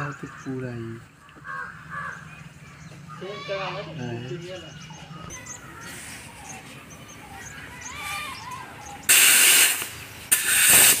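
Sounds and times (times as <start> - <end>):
loud hiss: 9.0 - 11.0.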